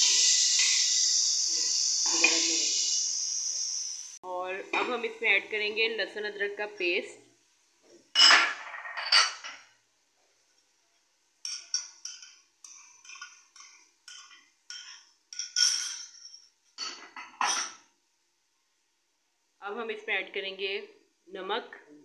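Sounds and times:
spoon clinking on ceramic bowl: 11.4s - 17.8s.

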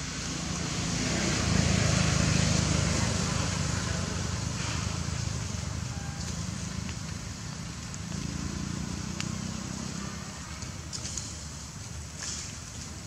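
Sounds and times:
low rumble of distant engines: 0.0s - 13.0s
dry leaves crackling: 5.0s - 13.0s.

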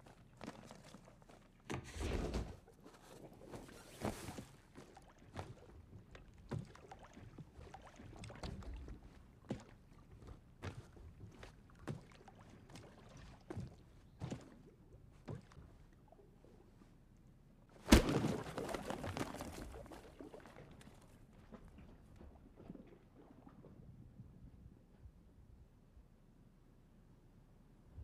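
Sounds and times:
water sloshing in mattress: 0.0s - 1.8s, 2.5s - 16.8s, 17.8s - 24.1s
soft thumps on waterbed: 3.4s - 16.0s.

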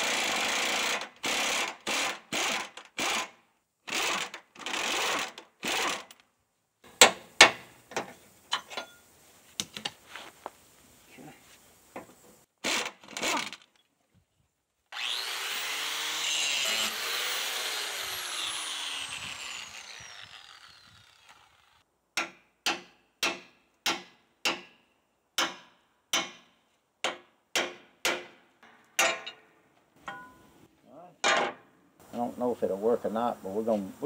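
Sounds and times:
power tool spinning: 14.9s - 21.8s
metal clanks: 28.6s - 30.5s.

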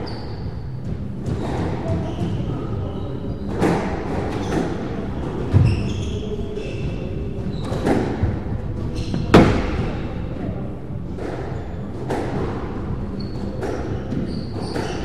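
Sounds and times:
shoes squeaking on wooden floor: 0.0s - 10.1s, 13.0s - 15.0s
squash ball hit by rackets: 9.1s - 10.1s.

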